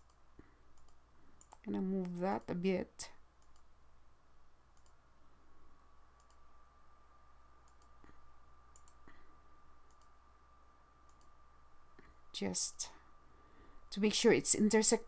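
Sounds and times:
computer mouse clicks: 0.0s - 2.5s, 3.4s - 3.7s, 4.7s - 5.0s, 6.2s - 6.5s, 7.6s - 9.2s, 9.8s - 10.2s, 11.0s - 11.4s
faint steady whine: 0.0s - 15.0s.

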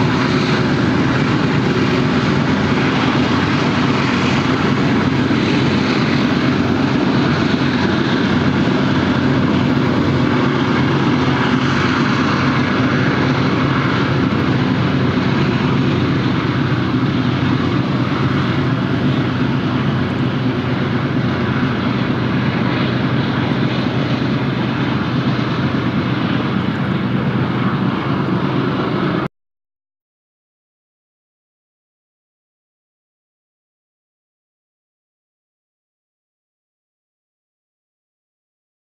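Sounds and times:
diesel locomotive engine drone: 0.0s - 29.3s
train wheels rumbling on rails: 0.0s - 29.3s.

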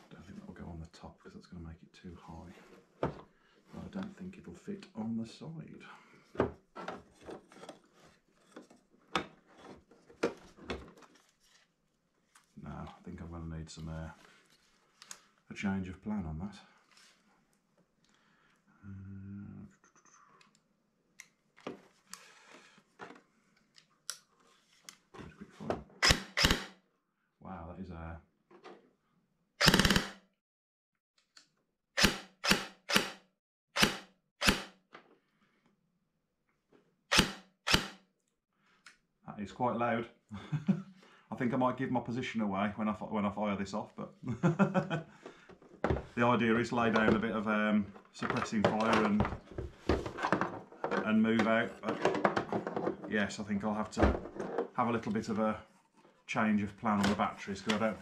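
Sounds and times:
rubbing and rustling of gun parts: 6.5s - 13.0s, 14.1s - 15.4s, 21.7s - 25.6s, 45.1s - 53.2s, 54.2s - 56.3s
airsoft gun firing: 29.6s - 30.2s.

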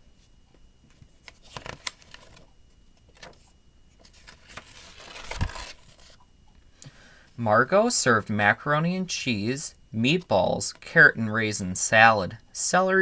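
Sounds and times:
page rustling: 0.8s - 6.2s.

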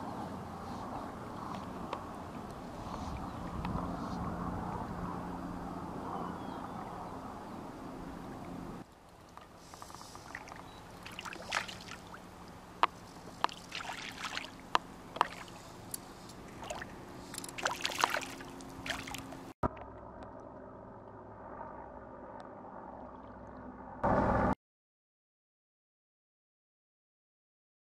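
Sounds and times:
moving water: 0.0s - 24.5s
hum: 0.0s - 24.6s
fish splashing in water: 9.7s - 15.8s, 16.6s - 19.5s.

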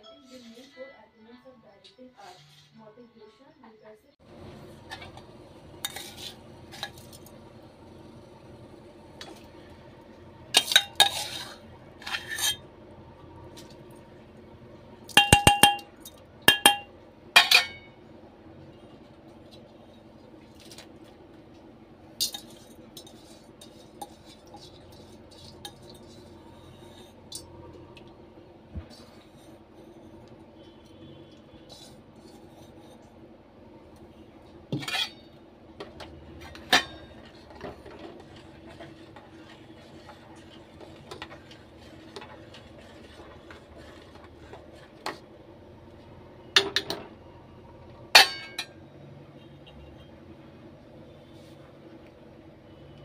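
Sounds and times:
steady low hum: 2.8s - 53.0s
metal spoon clinking in pot: 15.1s - 17.9s, 48.2s - 48.8s.

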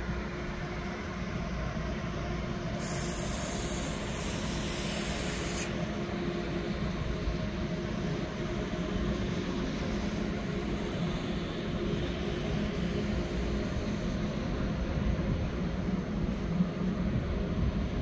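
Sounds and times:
electric train drive hum: 0.0s - 18.0s
loud hiss: 2.8s - 5.8s.

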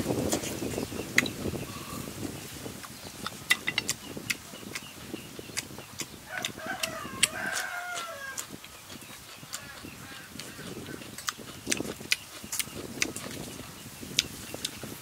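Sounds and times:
man chewing: 0.1s - 2.1s, 2.7s - 15.0s
rooster crowing: 6.3s - 8.4s.

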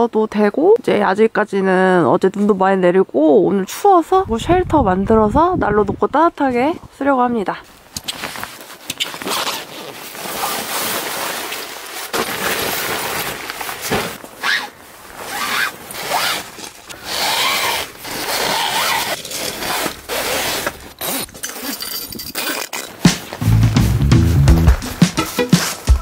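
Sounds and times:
nylon fabric rustling and scraping: 7.6s - 23.7s, 24.4s - 26.0s
zippers being pulled: 8.0s - 23.2s.

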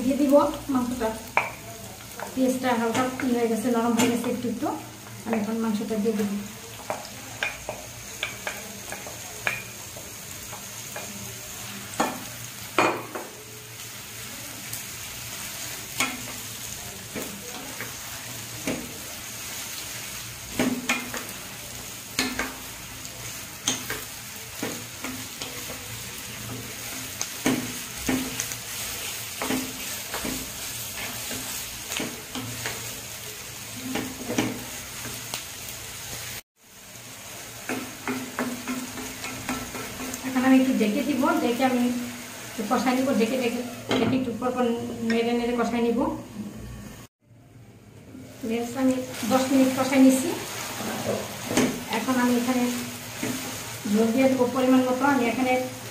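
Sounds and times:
meat sizzling in a frying pan: 0.0s - 46.2s, 48.2s - 55.9s
wooden spatula scraping a pan: 49.1s - 54.0s.

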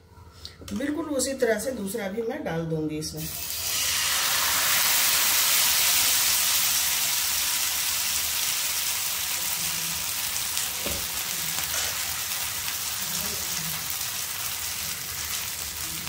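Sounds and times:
batter sizzling in oil: 3.2s - 16.0s.

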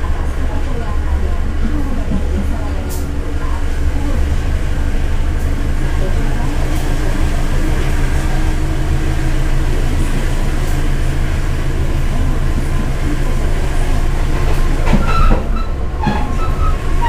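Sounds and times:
train wheels rumbling on rails: 0.0s - 17.0s
high metallic squeals: 15.0s - 17.0s.

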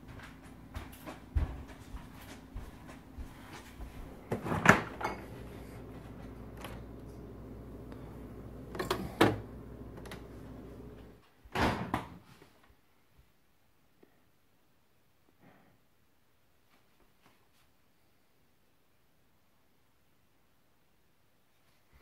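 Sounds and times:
low steady hum: 0.0s - 11.2s
refrigerator door opening: 8.7s - 10.3s.

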